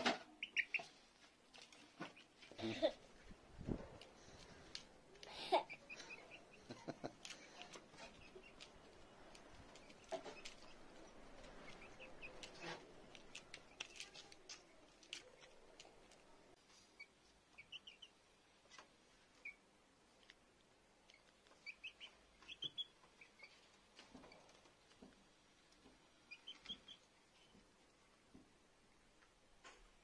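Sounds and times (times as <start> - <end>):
chicks peeping: 0.3 - 1.0, 5.5 - 14.3, 16.8 - 18.2, 21.0 - 24.6, 26.1 - 27.6
beaks pecking plastic dish: 5.8 - 16.2.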